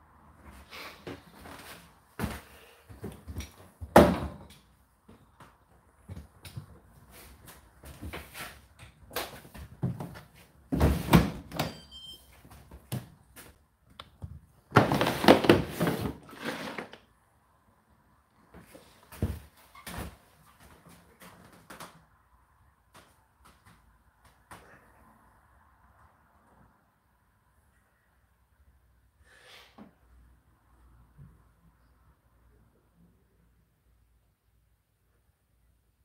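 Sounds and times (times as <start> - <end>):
plastic tank scraping slide: 14.9 - 17.0.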